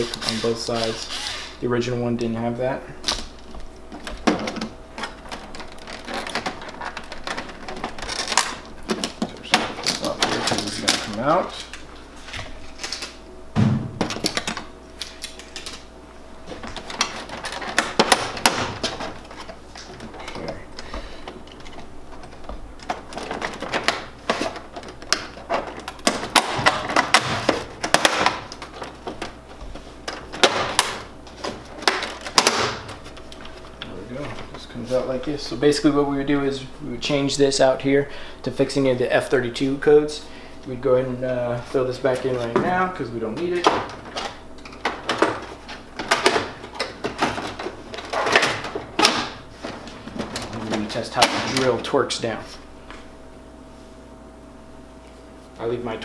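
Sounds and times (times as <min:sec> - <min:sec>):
plastic panels clicking and knocking: 0:03.9 - 0:11.3, 0:16.5 - 0:29.4, 0:30.1 - 0:33.6, 0:43.4 - 0:49.4.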